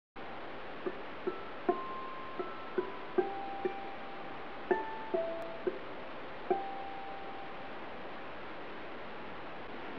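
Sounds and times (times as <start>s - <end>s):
steady hiss: 0.2s - 9.9s
ukulele plucked single notes: 0.8s - 7.7s.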